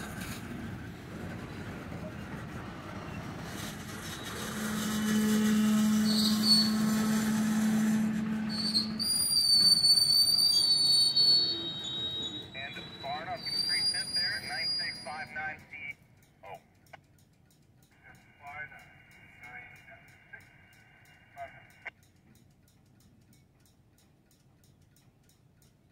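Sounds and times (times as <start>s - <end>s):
steady low drone: 0.0s - 9.1s
train wheels rolling on rails: 0.0s - 25.9s
high thin wheel squeal: 2.9s - 15.6s.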